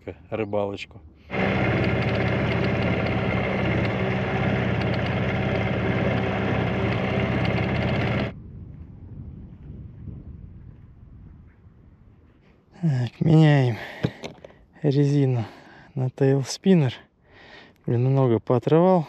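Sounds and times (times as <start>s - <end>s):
outboard motor running: 1.3s - 8.3s.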